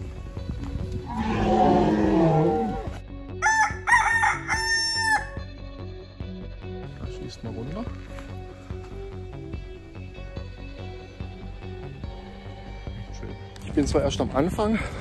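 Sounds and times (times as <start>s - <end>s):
background music: 0.0s - 15.0s
rooster crowing: 1.2s - 5.4s.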